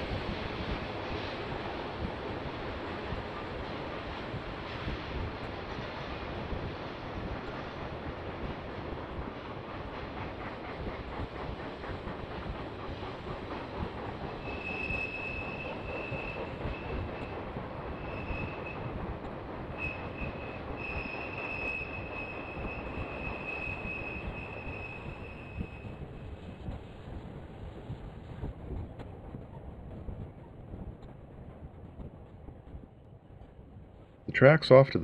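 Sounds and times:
train wheels rumbling on rail: 0.0 - 35.0
high thin squeal: 18.0 - 18.8, 19.8 - 26.0.

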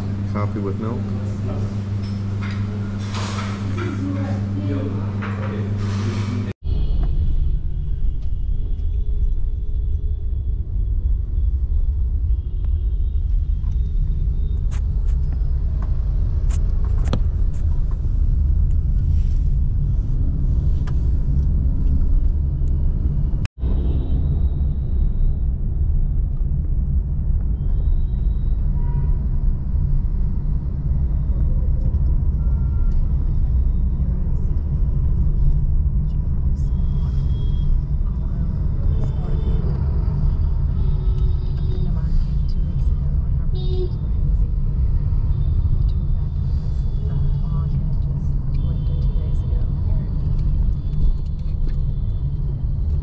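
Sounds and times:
car road rumble: 6.1 - 53.0.

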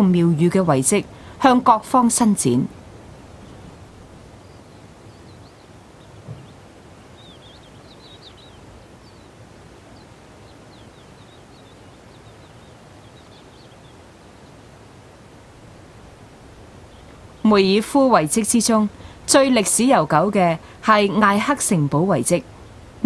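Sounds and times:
small birds chirping: 0.0 - 23.0
steady low hiss: 0.0 - 23.0
soft low bump: 6.2 - 6.6.

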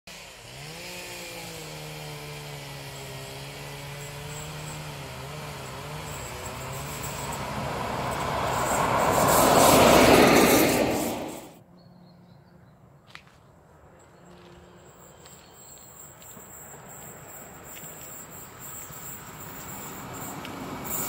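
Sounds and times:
diesel locomotive engine drone: 1.5 - 11.6, 13.6 - 21.0
rushing noise of approaching train: 6.1 - 11.6, 14.7 - 21.0.

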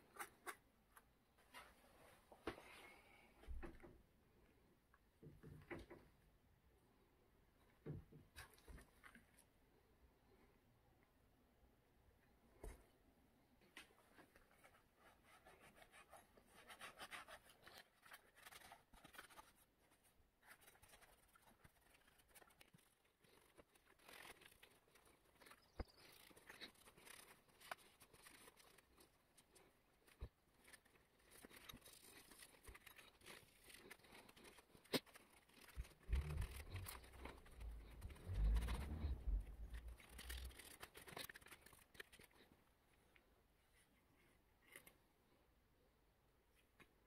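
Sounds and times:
cloth rubbing metal: 33.3 - 41.9
low rumble: 36.1 - 40.2.

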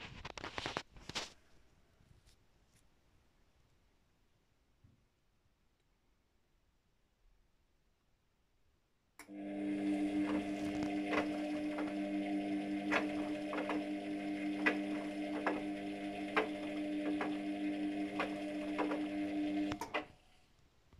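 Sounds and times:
motor click: 9.2 - 20.2
washing machine motor humming: 9.2 - 20.2.

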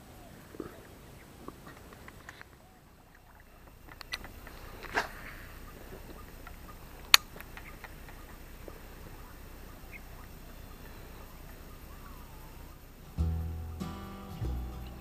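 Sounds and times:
outdoor background: 0.0 - 15.0
faint ticks: 1.4 - 12.8
guitar music: 13.0 - 15.0.

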